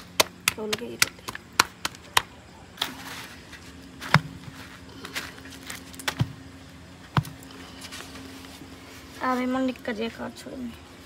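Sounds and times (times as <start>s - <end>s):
dough patted and slapped by hand: 0.0s - 2.4s.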